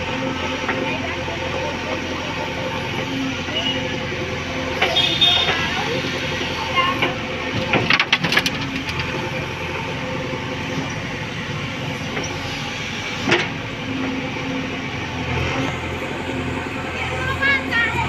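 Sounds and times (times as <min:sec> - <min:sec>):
diesel engine running: 0:00.0 - 0:18.0.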